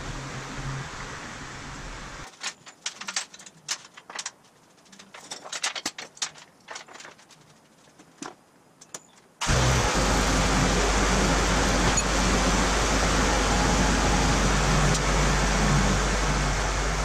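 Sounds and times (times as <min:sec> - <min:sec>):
metal chain clinking and rattling: 0:02.3 - 0:08.2.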